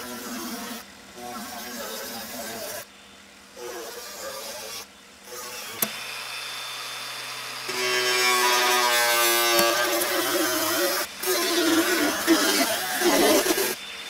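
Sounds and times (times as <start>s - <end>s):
power tool motor whining: 3.8s - 14.0s.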